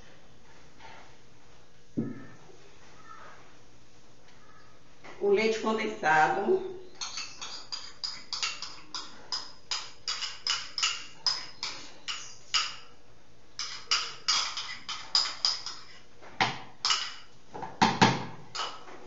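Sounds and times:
spoon scraping a container: 0:07.0 - 0:12.8, 0:13.6 - 0:16.0.

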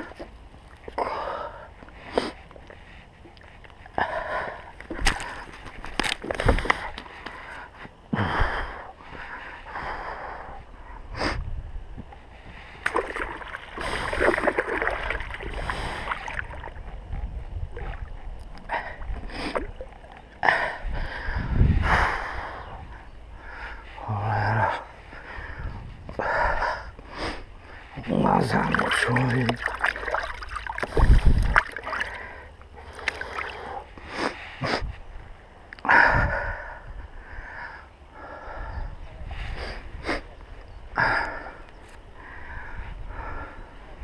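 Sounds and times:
water splashing and sloshing: 0:00.0 - 0:07.8, 0:12.1 - 0:21.4, 0:27.6 - 0:34.0.

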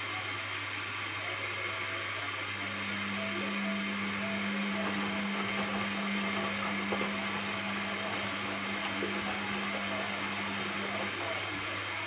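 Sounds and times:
washing machine motor hum: 0:00.0 - 0:12.0
water and laundry swishing: 0:02.7 - 0:11.7.

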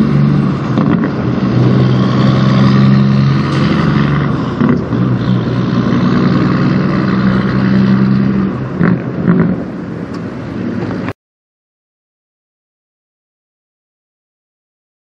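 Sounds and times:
diesel truck engine: 0:00.0 - 0:11.2.

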